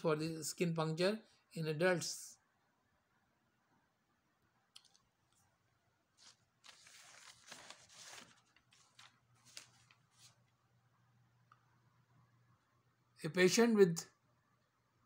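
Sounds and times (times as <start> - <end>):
paper rustling: 6.1 - 10.6.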